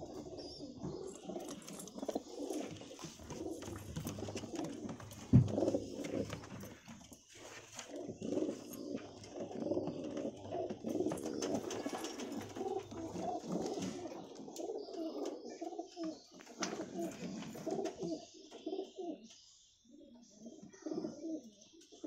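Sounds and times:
pigeons cooing: 0.0 - 22.0.

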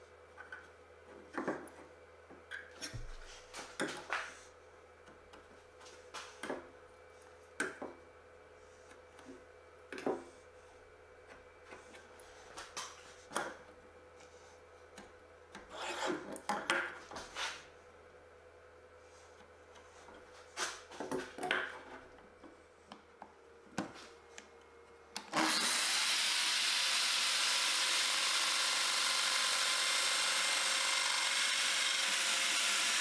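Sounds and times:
faint steady hum: 0.0 - 25.4.

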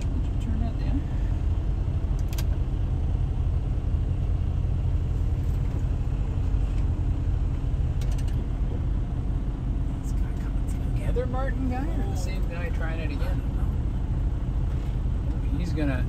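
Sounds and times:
truck diesel engine rumble: 0.0 - 16.0.

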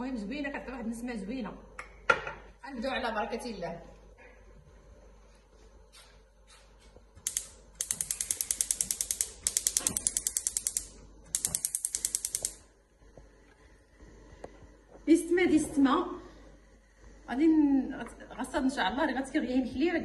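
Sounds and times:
spark igniter clicking rapidly: 7.2 - 12.6.

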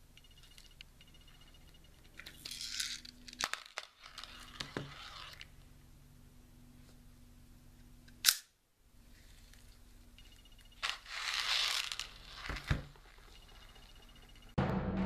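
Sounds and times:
magazine click: 8.1 - 8.5
music: 14.6 - 15.0.

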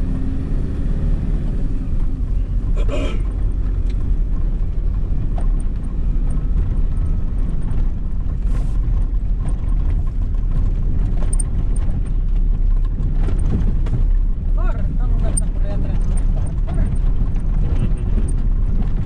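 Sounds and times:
car engine and road rumble: 0.0 - 19.0
faint ticks and rattles: 3.3 - 19.0.

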